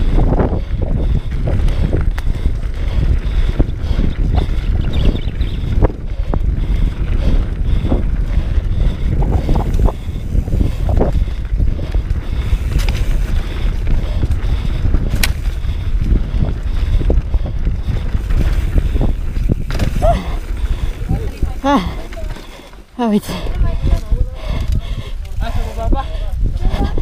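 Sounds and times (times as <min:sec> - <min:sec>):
wind rumble on microphone: 0:00.0 - 0:27.0
bike knocks and rattles: 0:18.3 - 0:20.4.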